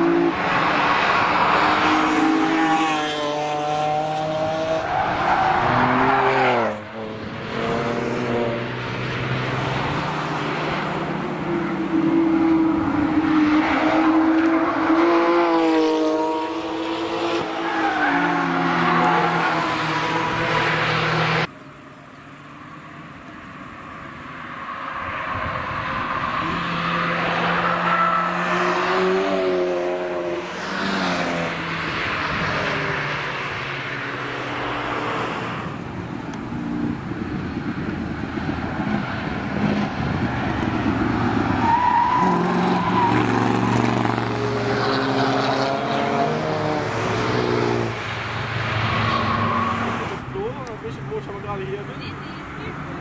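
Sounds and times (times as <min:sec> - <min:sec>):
cars driving past revving: 0:00.0 - 0:21.8, 0:22.4 - 0:53.0.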